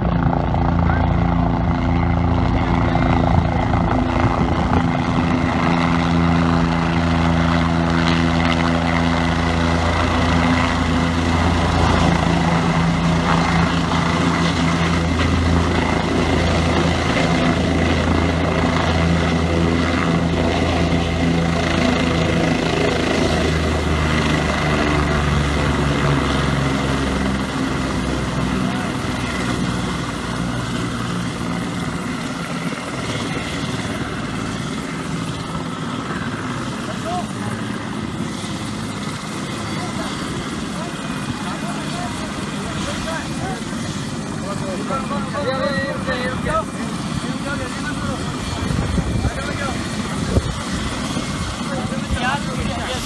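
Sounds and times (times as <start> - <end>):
helicopter rotor and engine: 0.0 - 53.0.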